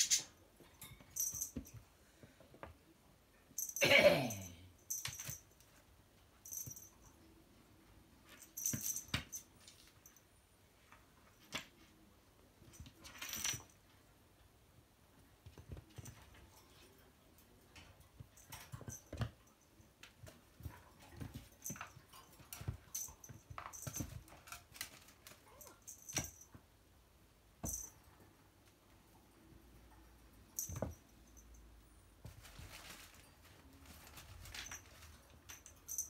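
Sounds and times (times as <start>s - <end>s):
toy rustling: 32.2s - 36.0s.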